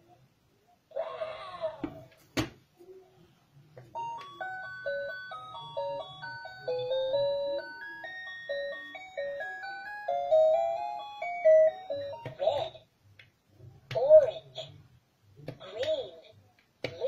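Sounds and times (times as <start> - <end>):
toy beeping melody: 3.9 - 12.8.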